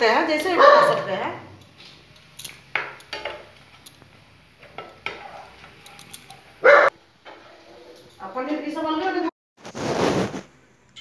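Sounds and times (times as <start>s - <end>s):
dog barking: 0.6s - 1.1s, 6.6s - 7.0s.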